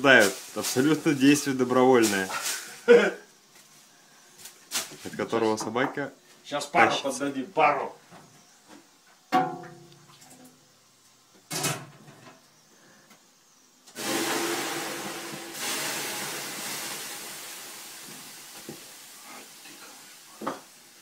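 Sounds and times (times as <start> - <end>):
water hissing on hot stones: 0.0 - 3.0, 13.9 - 21.0.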